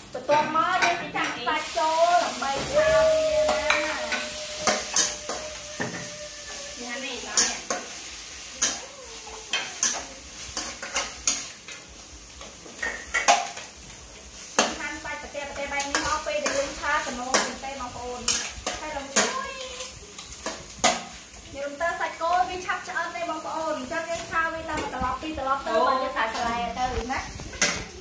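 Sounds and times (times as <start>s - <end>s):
beef sizzling in a wok: 0.0s - 28.0s
metal spatula scraping pan: 1.9s - 11.8s.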